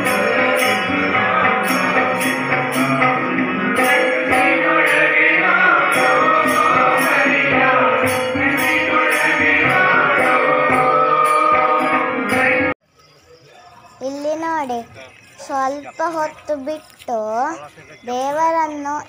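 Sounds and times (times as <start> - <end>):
group devotional singing: 0.0 - 12.8
hand percussion beat: 0.0 - 12.8.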